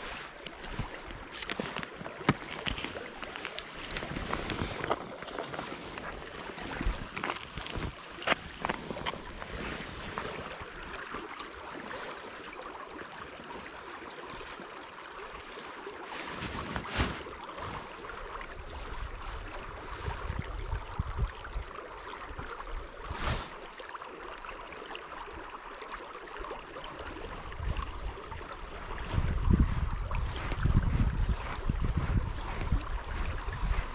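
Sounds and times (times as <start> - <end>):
wind gusting on microphone: 27.4 - 33.9.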